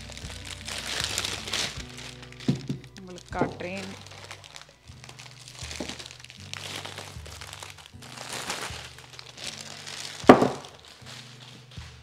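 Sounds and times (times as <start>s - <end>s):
plastic wrap crinkling: 0.0s - 12.0s.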